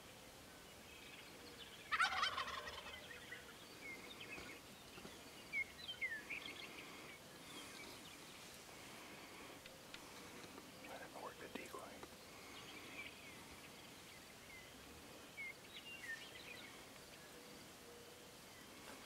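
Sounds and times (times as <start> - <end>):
turkey gobbling: 1.9 - 3.4.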